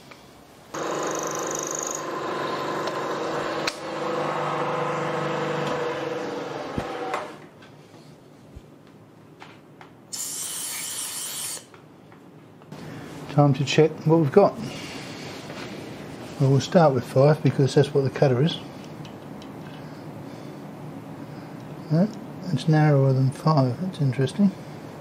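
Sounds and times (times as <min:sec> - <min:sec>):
milling machine cutting steel: 0:00.8 - 0:07.4.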